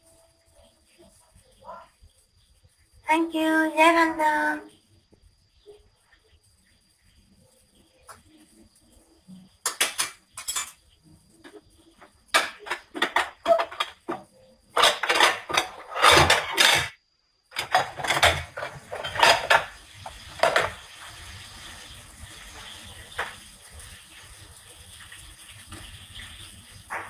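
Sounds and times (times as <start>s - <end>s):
dishes and utensils clattering: 9.6s - 11.6s, 12.3s - 20.8s.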